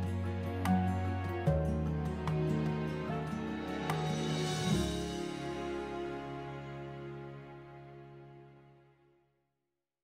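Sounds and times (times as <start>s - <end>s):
soft instrumental background music: 0.0s - 9.2s.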